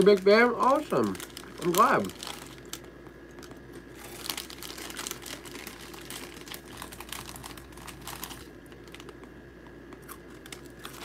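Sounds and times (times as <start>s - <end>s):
plastic bag crinkling: 0.0s - 9.3s, 10.0s - 11.0s.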